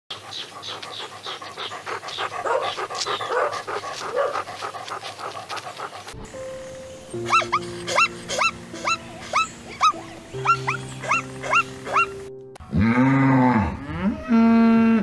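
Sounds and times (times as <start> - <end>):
dog panting rapidly: 0.1 - 6.2.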